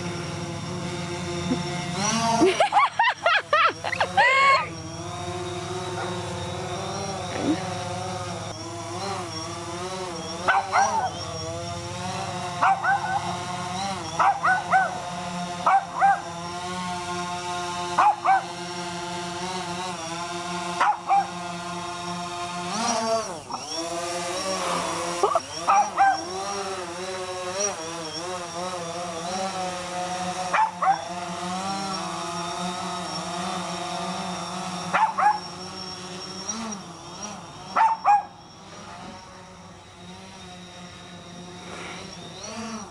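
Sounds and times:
drone propellers humming: 0.0 - 42.9
dog barking: 10.5 - 11.1, 12.6 - 13.2, 14.2 - 15.0, 15.7 - 16.2, 18.0 - 18.5, 20.8 - 21.3, 25.7 - 26.3, 30.5 - 31.0, 35.0 - 35.4, 37.8 - 38.3.

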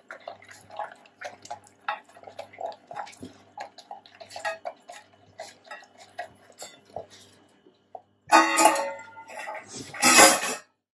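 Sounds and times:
dogs eating from metal bowls: 0.0 - 7.4, 8.3 - 10.6.

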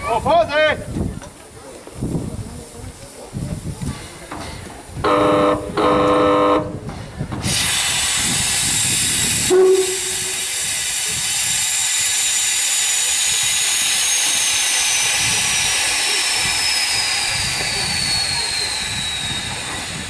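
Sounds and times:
steam locomotive whistle blasts: 5.0 - 6.7, 9.4 - 10.5
steam hissing: 7.3 - 20.0.

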